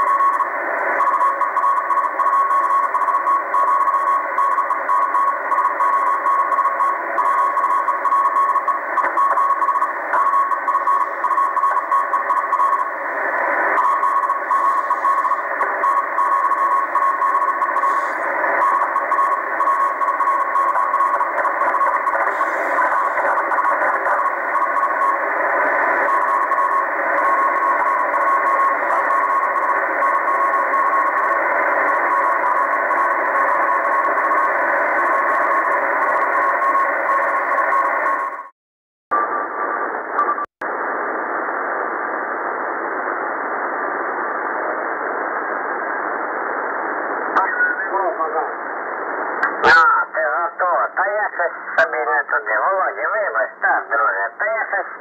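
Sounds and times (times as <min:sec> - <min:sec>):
radio band hiss: 0:06.7 - 0:37.0, 0:46.8 - 0:55.0
morse code tone: 0:13.8 - 0:38.4.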